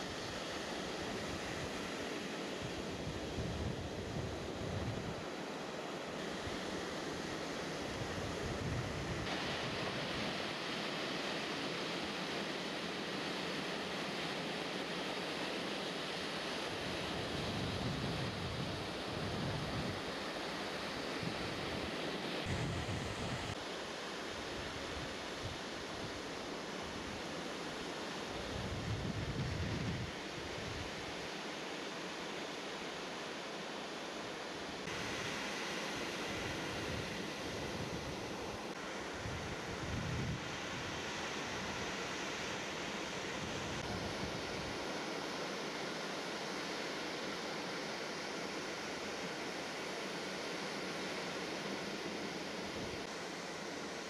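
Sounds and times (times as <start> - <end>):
wind rumbling on microphone: 8.1 - 9.3, 17.2 - 20.0, 22.5 - 23.6, 28.5 - 30.8, 39.2 - 40.9.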